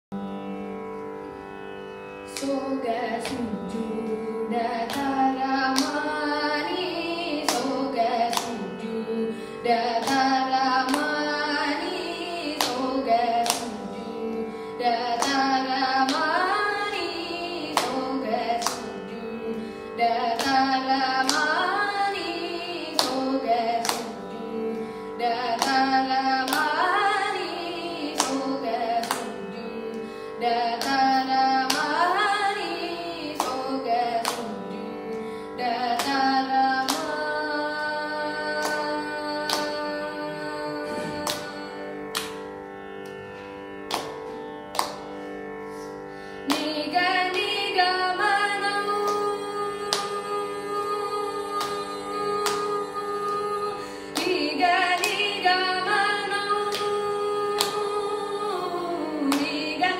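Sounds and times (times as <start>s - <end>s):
boy singing ornamented vocal: 35.6s - 41.8s.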